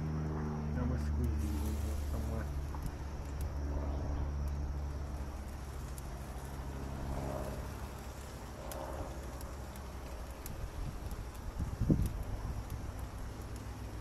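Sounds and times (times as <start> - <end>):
low engine drone: 0.0 - 14.0
light clicks on metal grill: 4.4 - 14.0.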